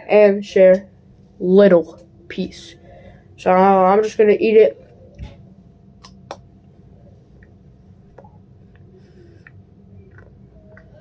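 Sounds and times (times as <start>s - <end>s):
low hum: 0.0s - 11.0s
person chewing: 8.7s - 11.0s.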